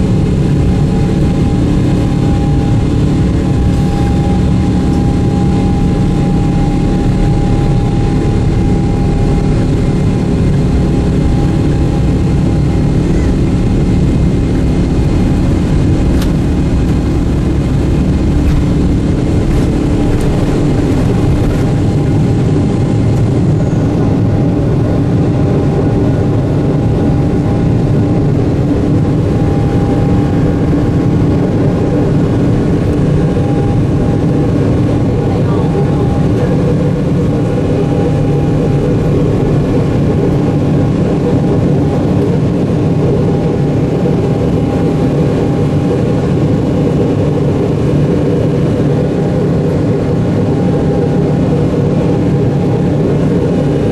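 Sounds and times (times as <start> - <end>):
jet engines roaring: 0.0 - 53.9
wheels rumbling on runway: 0.0 - 53.9.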